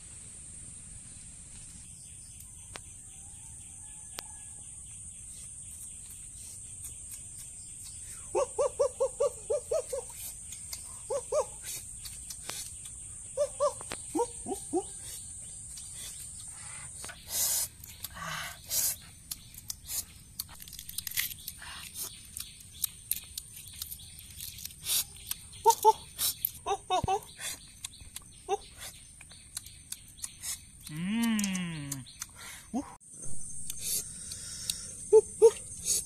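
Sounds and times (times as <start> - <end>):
insect drone: 0.0 - 27.7, 33.1 - 36.0
sharp clicks: 29.5 - 32.3.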